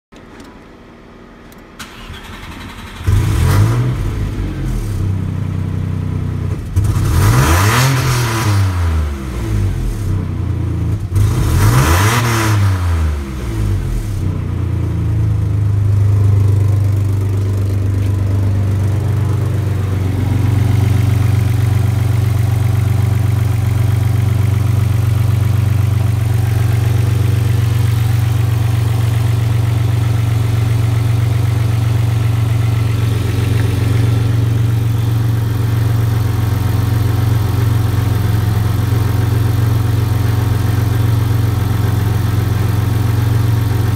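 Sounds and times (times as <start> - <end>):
car engine starting and revving: 1.8 - 43.9
car engine idling: 13.6 - 43.9.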